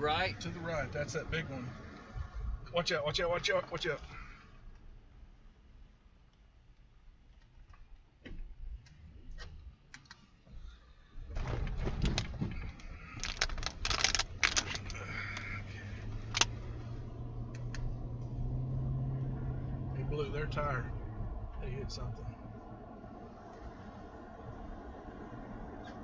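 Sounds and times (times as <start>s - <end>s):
low engine hum: 0.0s - 26.0s
sharp clicks: 16.2s - 16.6s.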